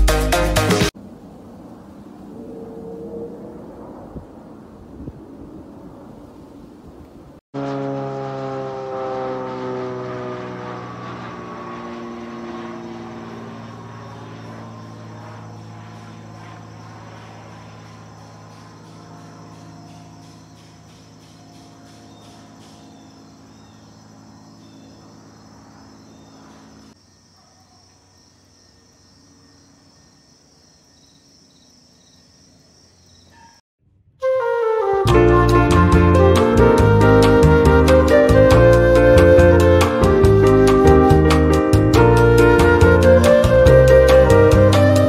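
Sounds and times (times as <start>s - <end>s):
propeller plane droning overhead: 0.9s - 27.0s, 34.6s - 45.0s
insects chirring: 10.8s - 33.6s.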